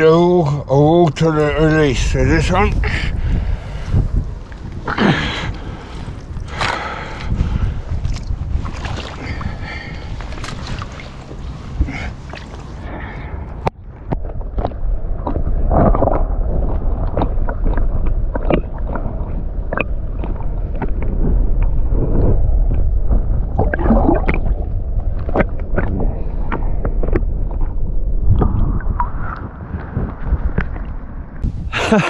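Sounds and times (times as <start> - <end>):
underwater rumble of moving water: 1.0 - 32.0
water gurgling: 14.0 - 32.0.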